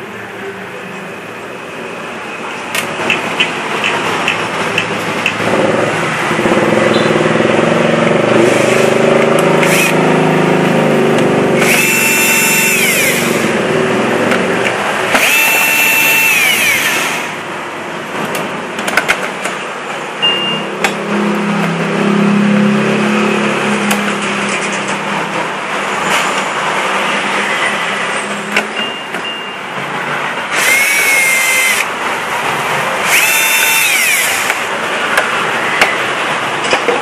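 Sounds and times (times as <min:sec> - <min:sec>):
electric screwdriver motor: 0:09.6 - 0:10.0, 0:11.6 - 0:13.5, 0:15.2 - 0:17.3, 0:30.5 - 0:31.9, 0:33.0 - 0:34.6.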